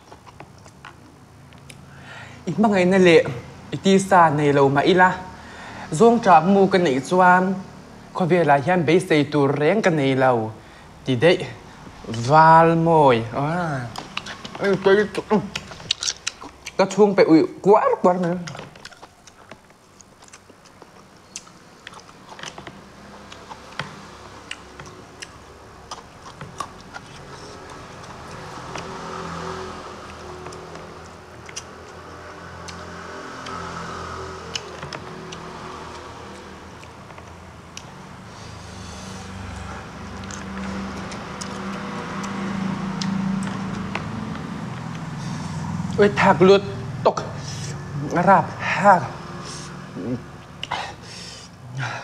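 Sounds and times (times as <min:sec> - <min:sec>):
person chewing food: 0:00.0 - 0:01.9, 0:13.8 - 0:16.8, 0:18.1 - 0:46.0, 0:50.4 - 0:51.5.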